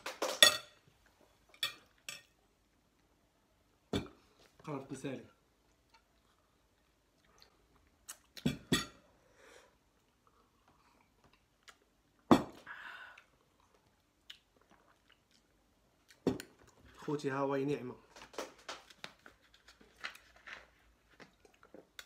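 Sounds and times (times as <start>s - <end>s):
chewing and slurping noodles: 13.4s - 16.2s.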